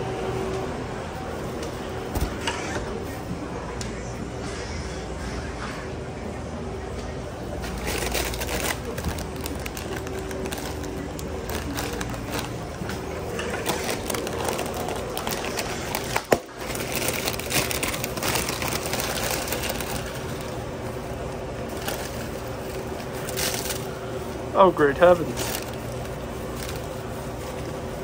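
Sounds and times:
foil bag crinkling: 7.6s - 21.0s, 21.6s - 28.0s.

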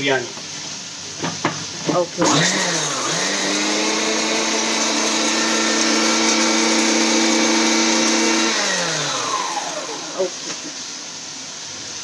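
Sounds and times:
motor spinning down: 2.2s - 10.4s
mixer grinder grinding spices: 2.2s - 10.6s.

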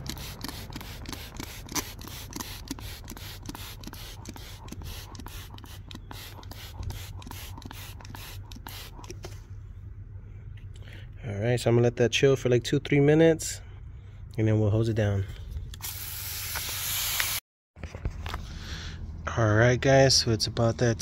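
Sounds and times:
trigger spray bottle hissing: 0.0s - 9.3s, 15.8s - 17.4s.

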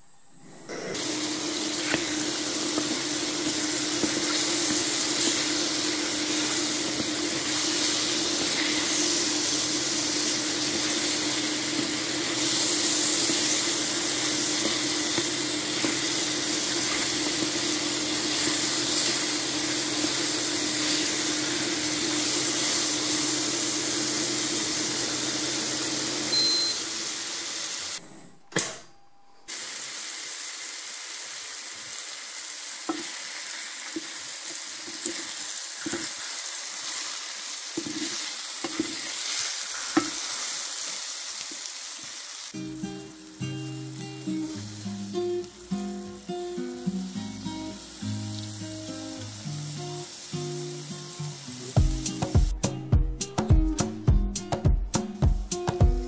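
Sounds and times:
mushrooms sizzling in oil: 1.0s - 28.0s, 29.5s - 52.5s
low hum: 28.0s - 29.5s.

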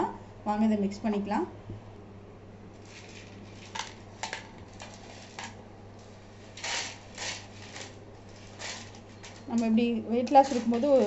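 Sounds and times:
steady low hum: 0.0s - 11.0s
spoon scraping metal plate: 10.2s - 11.0s.

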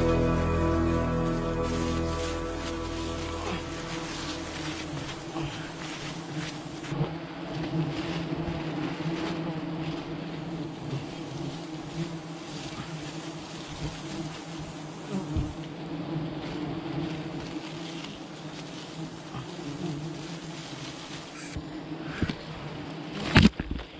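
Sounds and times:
bees buzzing: 0.0s - 23.4s
branches knocking: 0.8s - 6.9s.

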